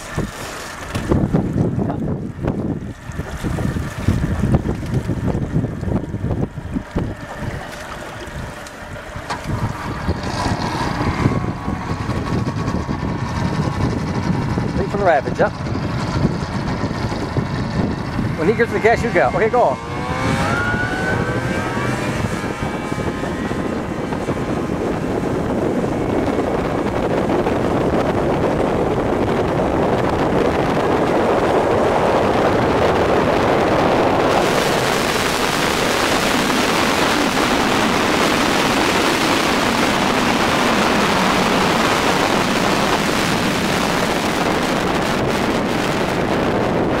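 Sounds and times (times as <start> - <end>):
plane engine revving: 0.0 - 47.0.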